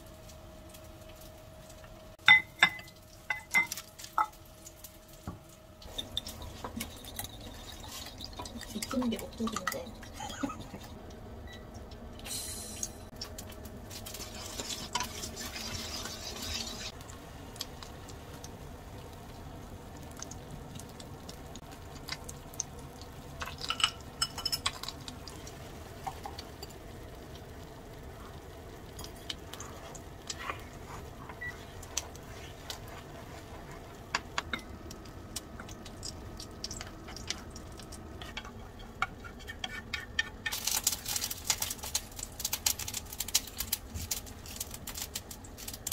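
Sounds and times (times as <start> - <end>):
frying pan hiss: 12.2 - 45.9
utensils clinking and scraping pan: 13.9 - 17.0, 38.2 - 42.0.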